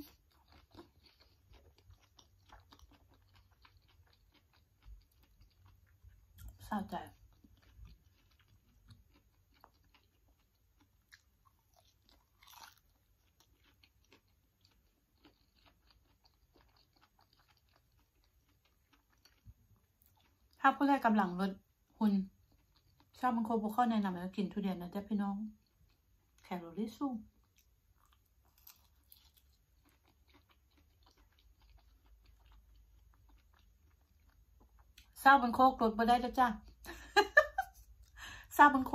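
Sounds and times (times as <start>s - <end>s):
chewing with lip smacks: 0.0s - 20.6s, 22.3s - 23.2s, 27.3s - 35.2s
biting soft fruit: 7.4s - 20.4s.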